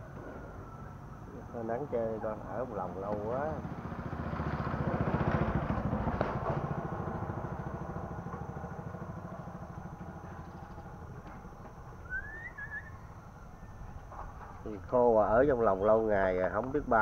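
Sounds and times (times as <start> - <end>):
motorcycle engine running: 2.5 - 12.2
short rising chirp: 11.9 - 13.8.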